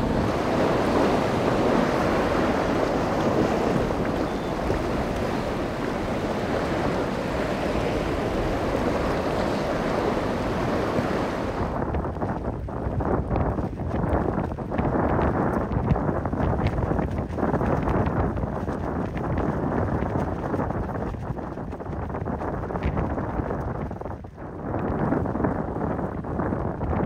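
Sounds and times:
choppy surf: 0.0s - 11.8s
wind buffeting microphone: 0.0s - 27.0s.

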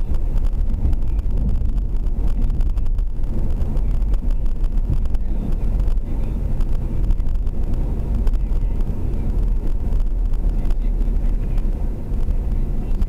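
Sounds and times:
car interior road rumble: 0.0s - 13.0s.

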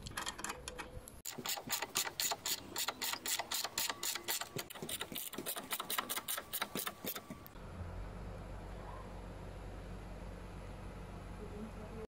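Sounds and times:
ratchet wrench clicking: 1.3s - 6.9s.

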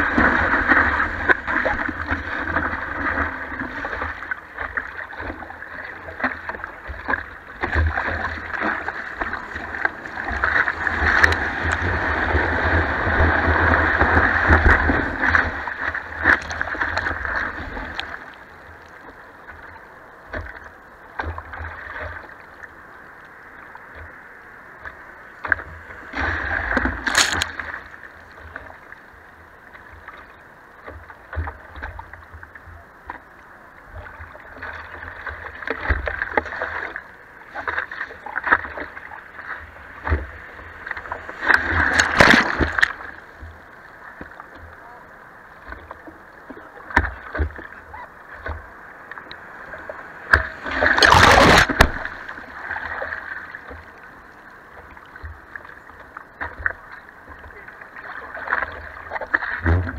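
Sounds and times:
water lapping: 0.0s - 59.9s
whitewash rushing and splashing: 7.7s - 18.1s, 49.4s - 53.6s.

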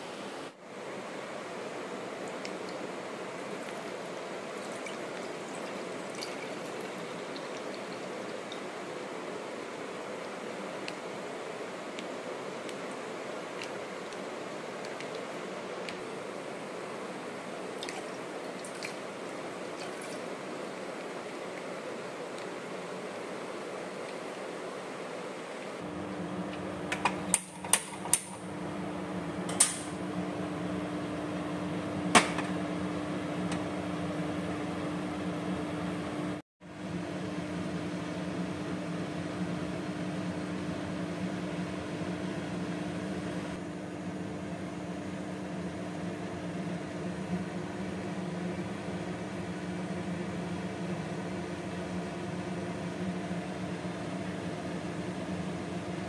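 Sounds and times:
mechanical hum: 0.0s - 56.0s
gas stove igniter clicking: 29.5s - 30.0s.

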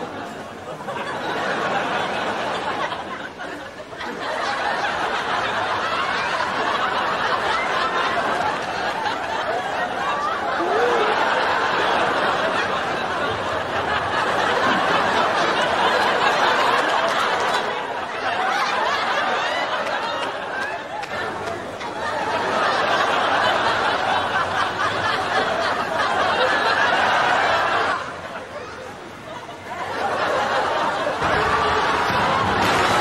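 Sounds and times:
crowd laughing and chattering: 0.0s - 33.0s.

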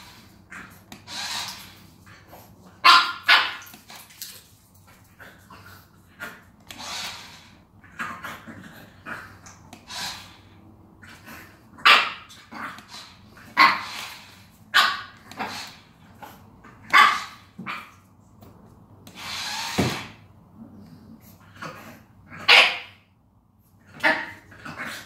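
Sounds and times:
toy car motor whirring: 0.9s - 1.8s, 6.7s - 7.6s, 9.8s - 10.6s, 12.7s - 14.5s, 15.2s - 16.0s, 19.1s - 19.9s
puppy barking: 2.8s - 3.7s, 11.8s - 12.3s, 14.7s - 15.6s, 16.8s - 18.0s, 22.4s - 23.0s, 24.0s - 24.4s.

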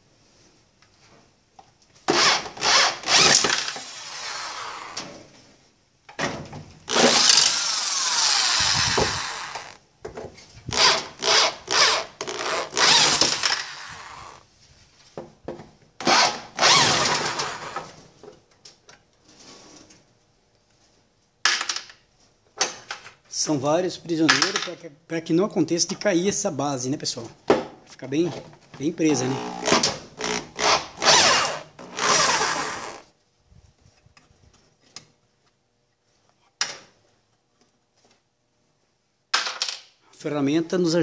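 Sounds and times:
cordless power screwdriver running: 2.2s - 5.0s, 6.9s - 9.8s, 10.7s - 14.4s, 16.0s - 17.8s, 29.3s - 33.0s.

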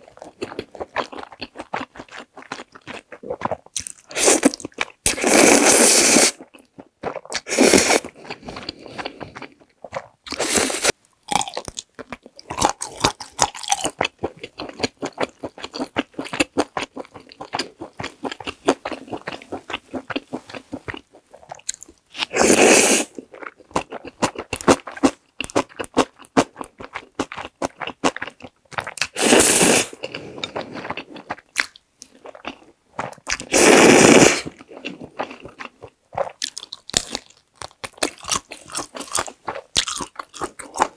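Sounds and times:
person slurping noodles: 3.2s - 6.4s, 7.1s - 11.0s, 22.2s - 23.2s, 29.2s - 31.2s, 33.4s - 35.1s
wet chewing and lip smacks: 34.8s - 40.9s.

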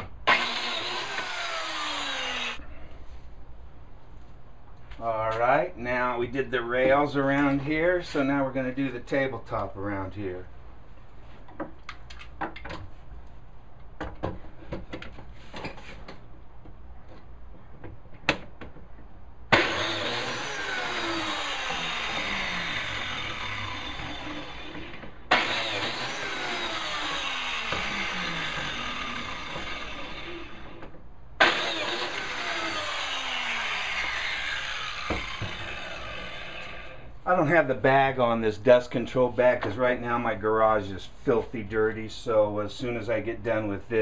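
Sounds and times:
biscuit joiner cutting wood: 0.0s - 2.6s, 19.5s - 37.1s.

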